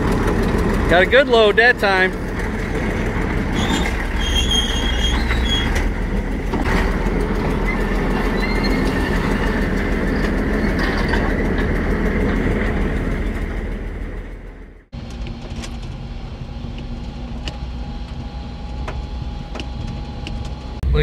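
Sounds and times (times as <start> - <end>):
diesel engine running under load: 0.0 - 21.0
high squeals: 3.5 - 6.1, 7.6 - 11.4.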